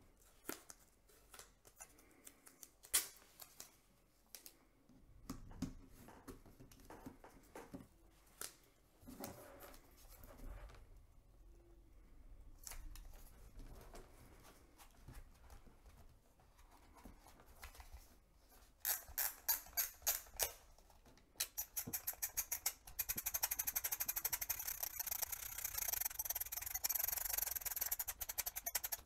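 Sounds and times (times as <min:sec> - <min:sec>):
plastic camera being handled: 0:20.3 - 0:29.0
ratcheting thumbwheel clicks: 0:21.6 - 0:29.0.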